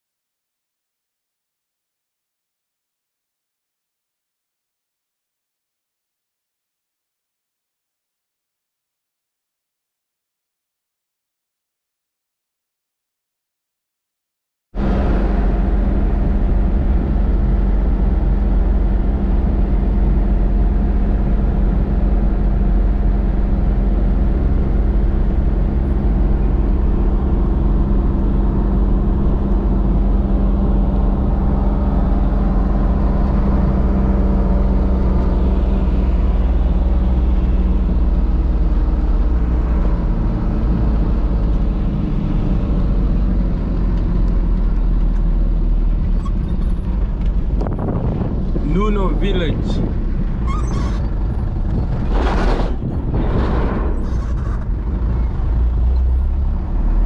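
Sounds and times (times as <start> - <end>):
road and tyre noise: 14.8 - 57.0
vehicle engine drone: 14.8 - 57.0.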